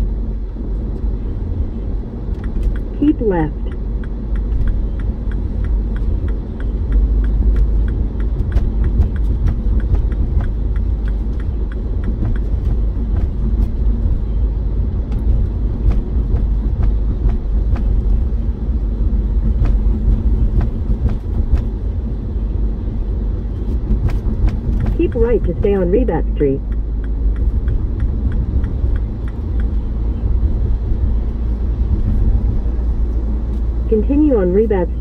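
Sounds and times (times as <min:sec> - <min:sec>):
car road noise rumble: 0:00.0 - 0:35.0.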